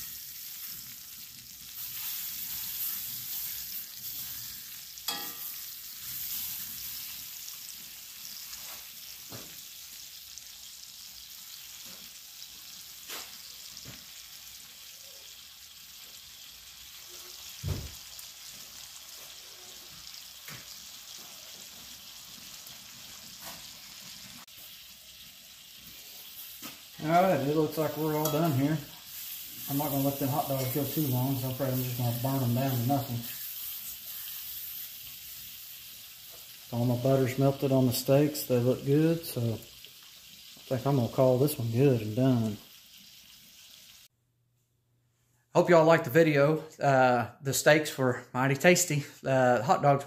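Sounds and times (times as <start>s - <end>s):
meat sizzling in skillets: 0.0s - 44.1s
metal tongs clicking on pans: 5.0s - 5.6s
knock on pan: 17.6s - 18.0s.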